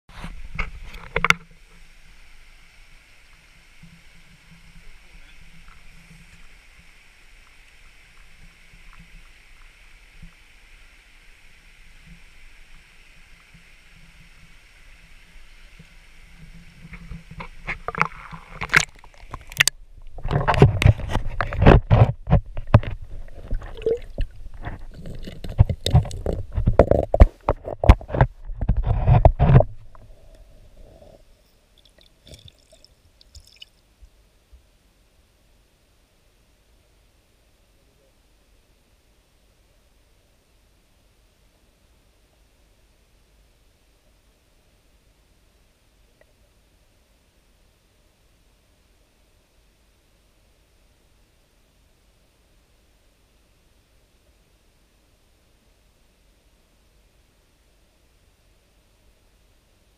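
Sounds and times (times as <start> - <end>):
stream hissing: 0.1 - 33.8
water sloshing and gurgling: 13.4 - 33.8.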